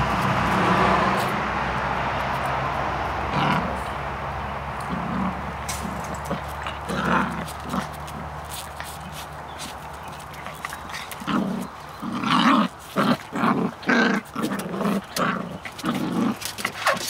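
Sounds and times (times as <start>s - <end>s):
puppy growling: 3.2s - 4.0s, 4.8s - 17.0s.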